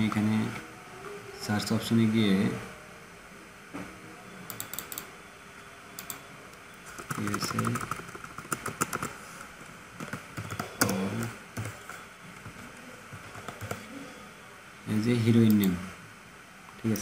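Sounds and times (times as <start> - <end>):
keyboard keys clicking: 7.0 - 9.1.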